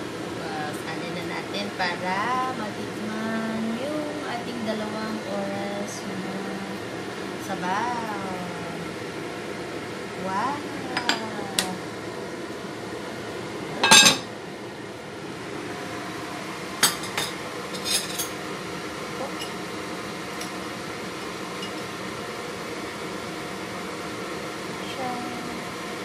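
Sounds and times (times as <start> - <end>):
steady background hum: 0.0 - 26.0
pot lid clattering onto pot: 13.8 - 14.3.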